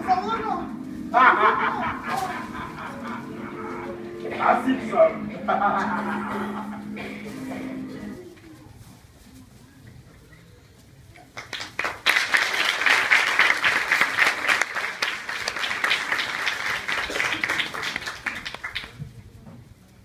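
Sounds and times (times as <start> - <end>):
audience applauding: 11.3 - 19.0.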